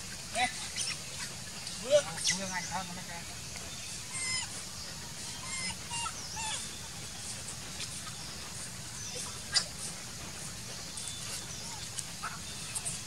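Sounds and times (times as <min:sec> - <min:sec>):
low background hum: 0:00.0 - 0:13.0
animal squeaks and chirps: 0:04.1 - 0:04.6, 0:05.2 - 0:06.8.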